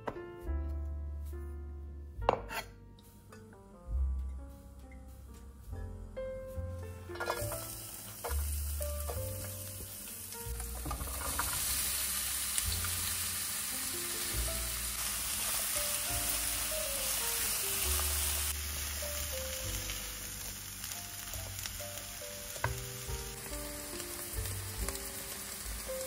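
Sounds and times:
spatula stirring vegetables: 7.1 - 13.6
vegetables sizzling in oil: 7.1 - 26.0.

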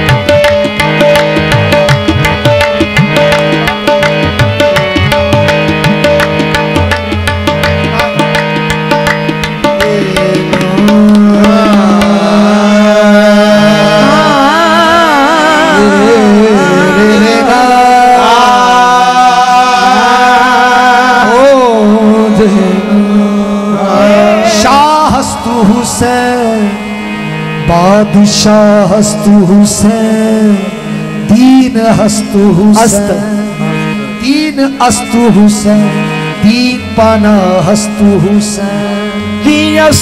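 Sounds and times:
tabla strokes: 0.0 - 12.6
harmonium drone: 0.0 - 40.0
singer wavering vocal line: 9.8 - 27.0.

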